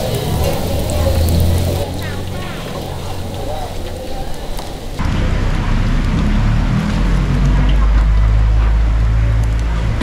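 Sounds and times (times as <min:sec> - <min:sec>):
oil sizzling in deep fryer: 0:00.0 - 0:08.2
loud low hum: 0:05.0 - 0:10.0.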